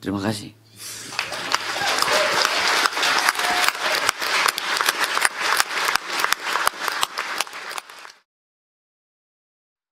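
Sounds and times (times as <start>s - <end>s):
audience applauding: 0.9s - 8.2s.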